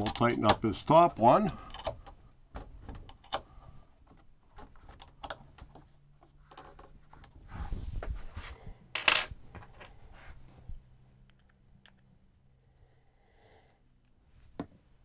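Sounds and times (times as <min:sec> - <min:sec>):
bolt tightening clicks: 0:01.4 - 0:02.2.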